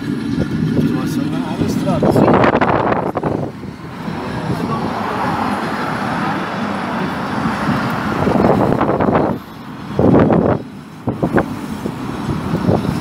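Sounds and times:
passing cars: 0:00.0 - 0:13.0.

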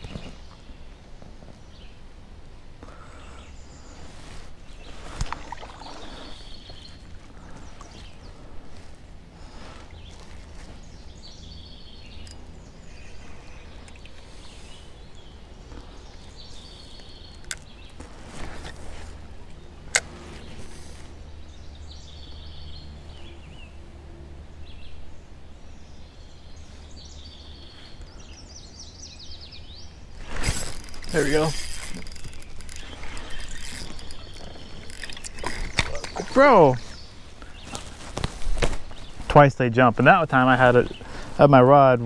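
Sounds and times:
birds chirping and singing: 0:09.4 - 0:18.9, 0:24.5 - 0:42.0.

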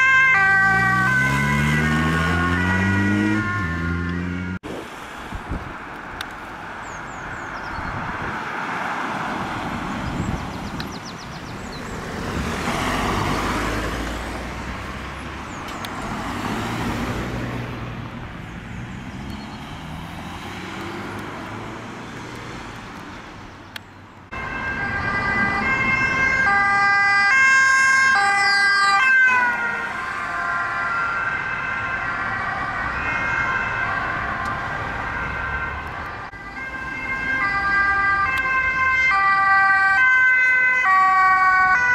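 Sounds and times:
ambulance two-tone siren: 0:00.0 - 0:04.6, 0:24.3 - 0:41.9
road traffic passing: 0:00.0 - 0:41.9.

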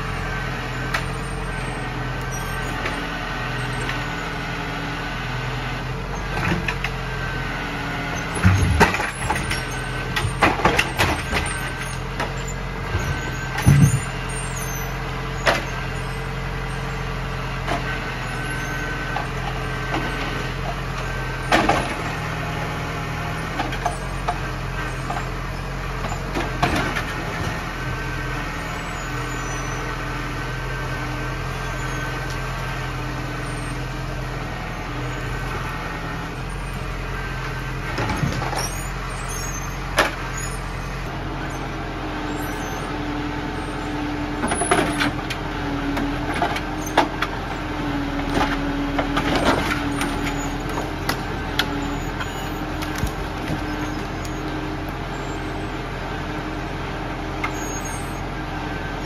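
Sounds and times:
hydraulic crane whine: 0:00.0 - 0:59.0
tractor diesel engine running: 0:00.0 - 0:59.0
heavy wooden knocks of logs: 0:12.2 - 0:14.2.

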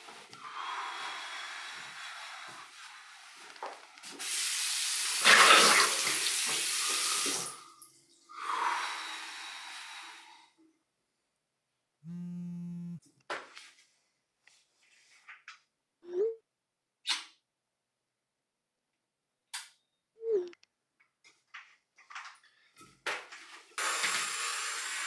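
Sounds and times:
low steady buzz: 0:12.0 - 0:13.0.

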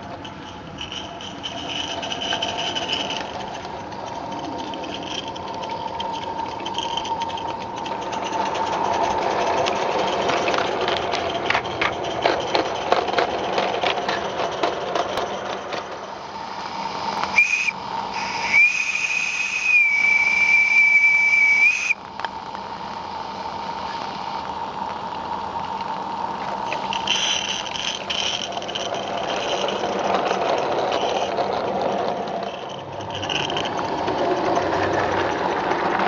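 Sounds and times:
toy train rattling over track: 0:00.0 - 0:36.0
steam whistle: 0:17.3 - 0:22.0.

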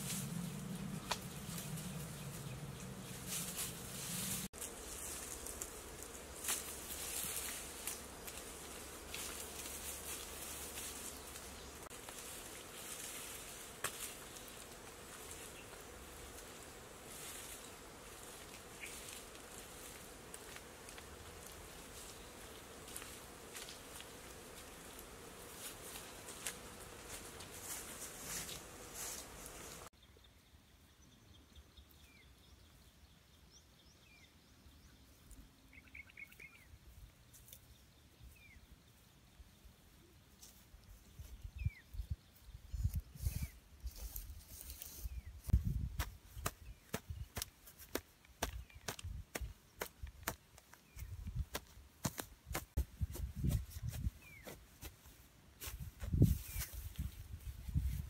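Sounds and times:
insects buzzing and shrilling: 0:00.0 - 0:29.9
faint bird chirps: 0:30.0 - 0:39.1.

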